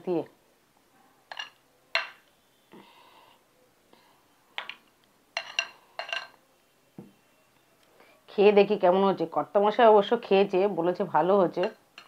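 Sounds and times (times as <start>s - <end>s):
metal spoon clinking on bowl: 5.4s - 6.4s, 11.6s - 12.0s.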